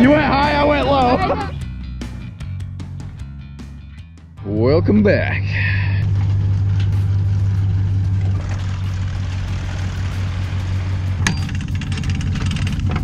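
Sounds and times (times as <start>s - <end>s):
vehicle engine idling: 5.4s - 13.0s
light rattling: 6.1s - 13.0s.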